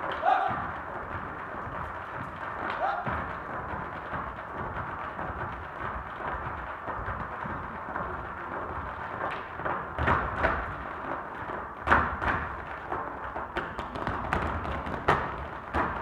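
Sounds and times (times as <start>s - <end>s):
hard shoes stamping on wooden stage: 0.0s - 16.0s.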